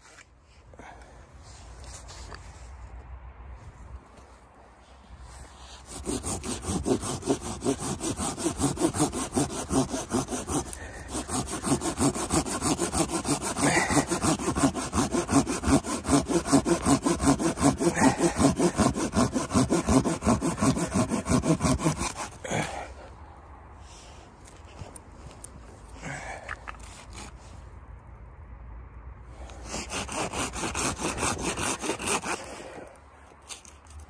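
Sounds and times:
hand saw cutting wood: 5.6 - 22.8, 26.7 - 27.4, 29.4 - 34.0.

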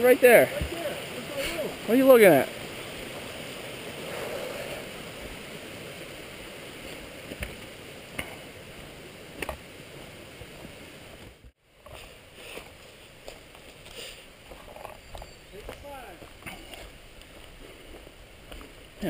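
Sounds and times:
mountain brook rushing: 0.0 - 14.8.

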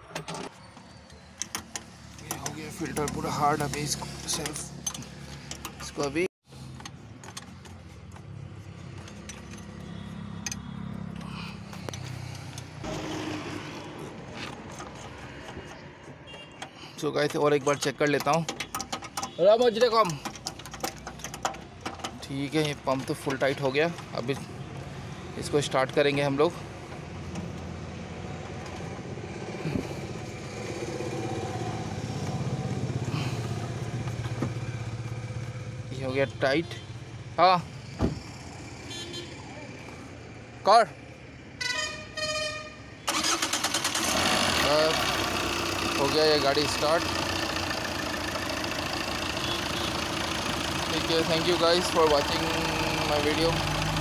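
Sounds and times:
vehicle engine humming: 0.0 - 41.9, 43.0 - 54.0
diesel engine idling: 43.1 - 54.0.

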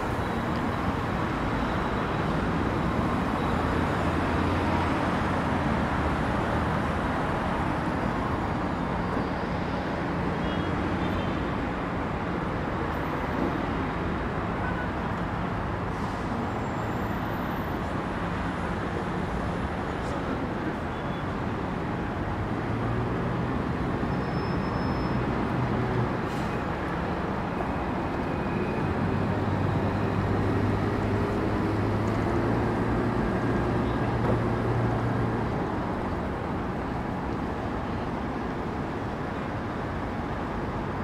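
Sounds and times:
buses and cars passing: 0.0 - 41.0.

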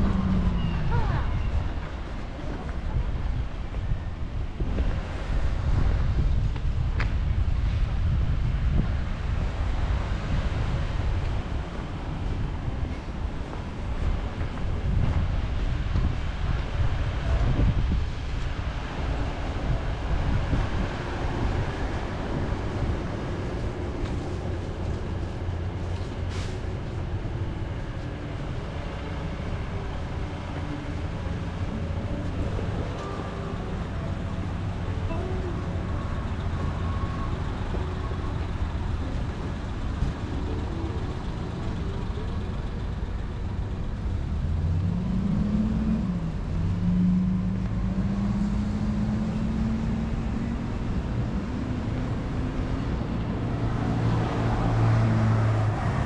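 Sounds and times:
vehicle engine speeding up: 0.0 - 1.7, 20.3 - 56.0
traffic rumble: 0.0 - 56.0.

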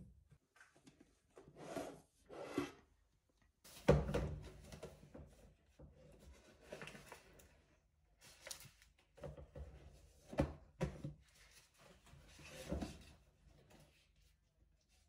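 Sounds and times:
rubbing or sliding sounds: 1.5 - 2.8.

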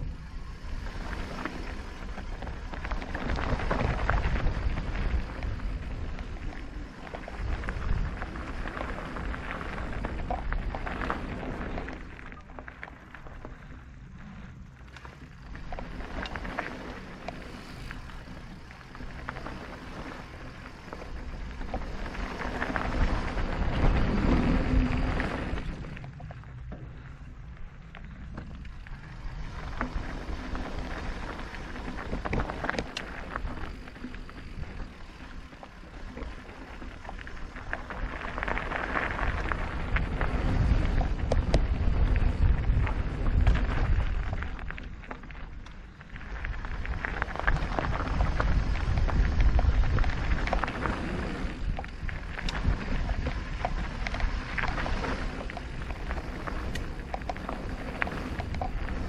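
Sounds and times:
bike clicking and rattling: 0.0 - 59.0
tyres rolling over stony trail: 0.0 - 59.0
wind buffeting microphone: 0.0 - 59.0.

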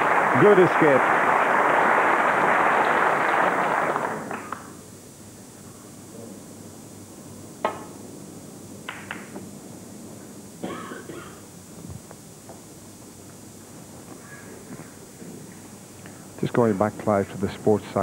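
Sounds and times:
audience applause: 0.0 - 4.8
cue striking ball: 8.9 - 9.4.

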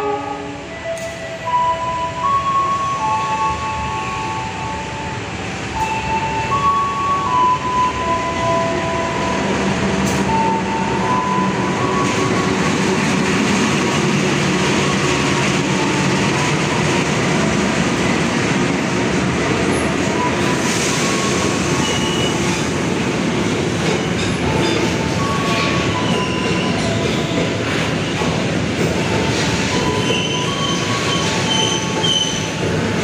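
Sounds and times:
freight train rumbling past: 0.0 - 33.0
train wheel squeals: 20.1 - 22.7, 23.8 - 28.4, 29.0 - 32.6.

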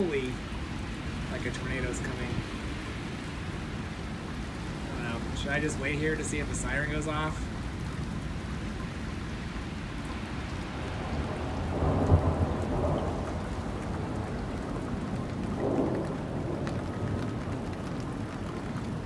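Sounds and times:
steady rain: 0.0 - 19.0
thunder rumbling: 10.4 - 19.0.

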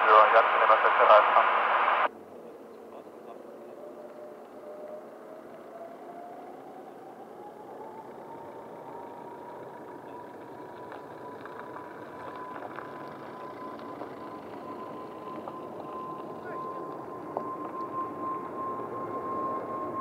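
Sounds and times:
jet engine rumble: 0.0 - 2.1.

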